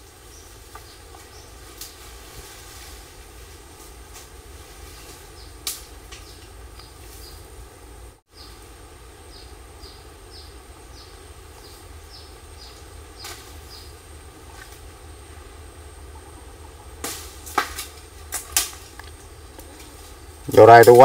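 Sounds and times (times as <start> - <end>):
low outdoor rumble: 0.0 - 21.0.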